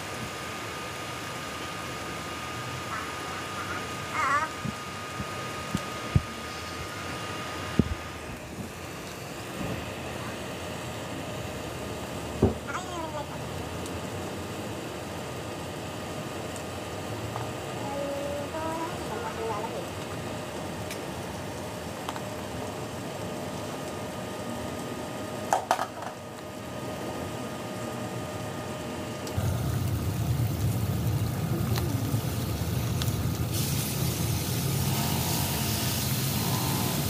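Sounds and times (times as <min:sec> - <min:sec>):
low hum: 0:29.2 - 0:37.0
meat sizzling in oil: 0:29.4 - 0:37.0.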